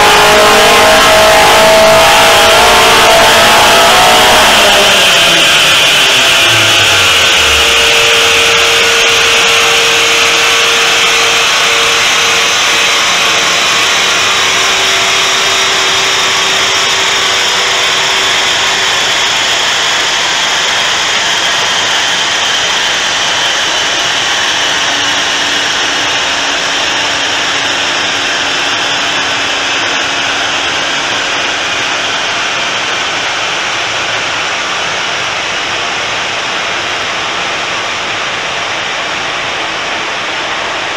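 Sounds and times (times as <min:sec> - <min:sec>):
faint whine falling in pitch: 0:00.0 - 0:33.4
dyno rollers spinning down: 0:00.0 - 0:40.9.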